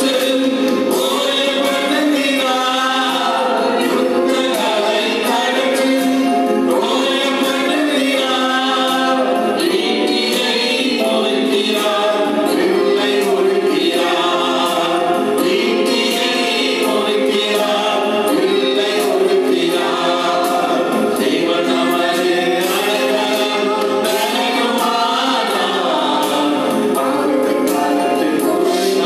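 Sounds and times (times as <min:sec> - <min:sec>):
electronic keyboard accompaniment: 0:00.0 - 0:29.0
men and women singing together: 0:00.0 - 0:29.0.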